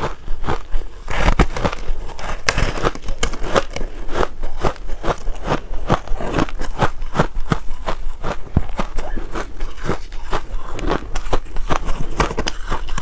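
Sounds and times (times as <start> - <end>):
ice crunching being chewed: 0.0 - 13.0.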